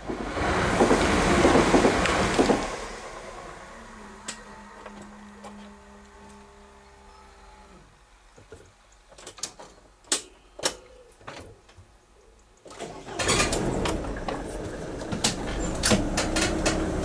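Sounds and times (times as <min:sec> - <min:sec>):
car engine starting and running: 0:00.4 - 0:07.2, 0:12.8 - 0:17.0.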